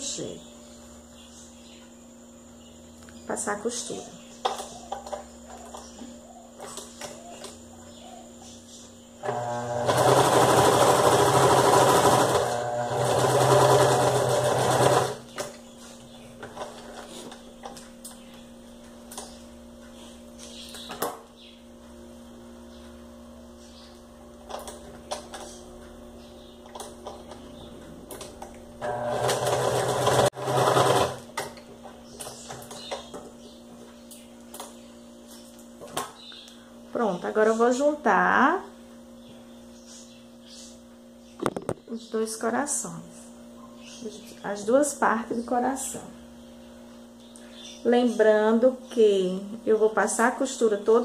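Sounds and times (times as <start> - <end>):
sewing machine stitching: 9.2 - 15.2, 28.8 - 31.2.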